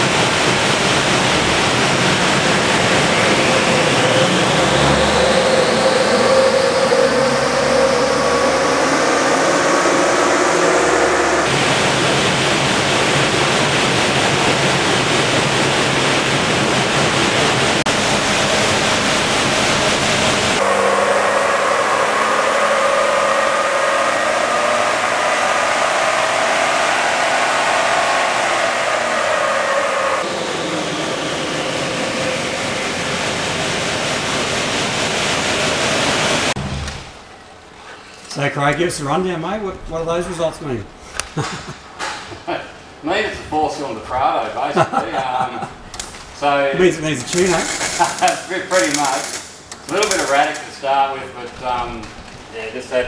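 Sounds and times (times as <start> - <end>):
diesel engine revving: 0.0 - 37.3
loud steady rush: 0.0 - 37.3.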